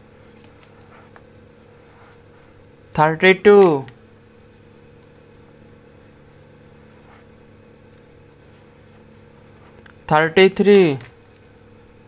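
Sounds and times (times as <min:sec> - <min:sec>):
faint background hum and hiss: 0:00.0 - 0:12.0.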